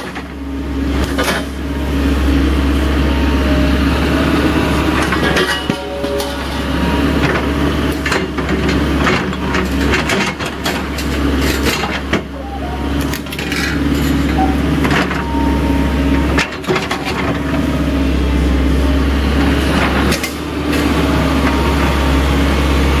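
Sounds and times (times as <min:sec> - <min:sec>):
excavator diesel engine running: 0:00.0 - 0:23.0
metallic clanks and rattles: 0:05.0 - 0:12.3.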